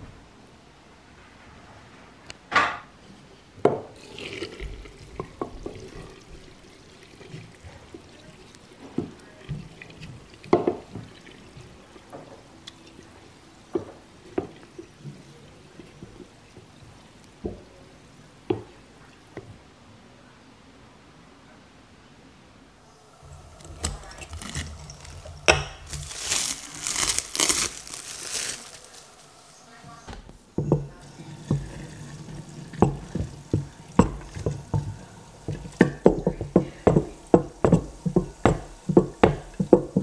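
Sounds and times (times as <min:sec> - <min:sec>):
spatula stirring wet mash: 0:23.2 - 0:29.3, 0:30.5 - 0:40.0.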